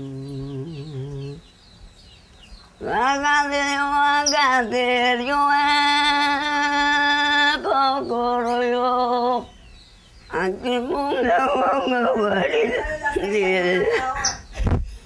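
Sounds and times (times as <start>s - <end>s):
person singing a lament: 0.0s - 1.4s, 10.3s - 13.9s.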